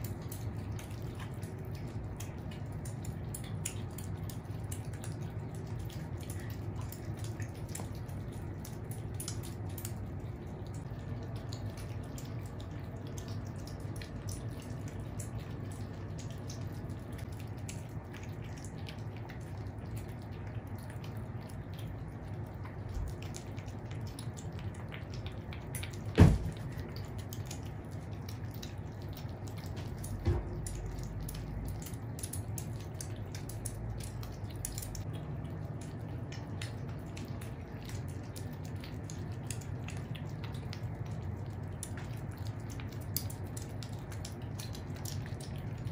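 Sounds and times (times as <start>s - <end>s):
kittens eating and slurping: 0.0s - 45.9s
thump: 26.2s - 26.5s.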